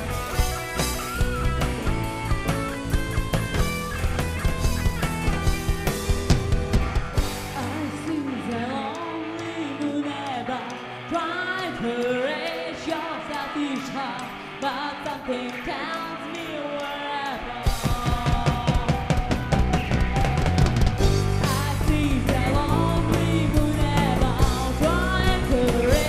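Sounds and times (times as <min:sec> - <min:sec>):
live rock band: 0:00.0 - 0:26.0
woman singing: 0:07.5 - 0:19.2, 0:21.3 - 0:26.0.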